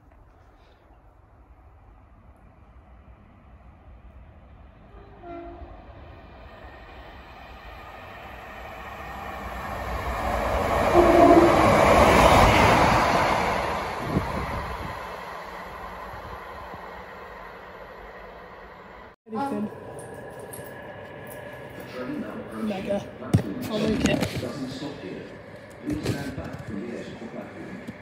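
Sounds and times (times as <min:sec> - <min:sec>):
diesel train engine and wheels: 0:00.0 - 0:28.0
train horn: 0:04.9 - 0:05.9, 0:10.8 - 0:11.8.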